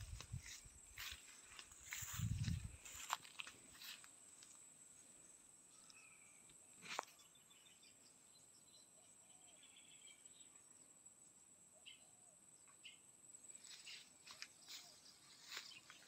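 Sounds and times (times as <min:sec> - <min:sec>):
faint bird chirps: 0:05.7 - 0:11.0, 0:11.7 - 0:16.0.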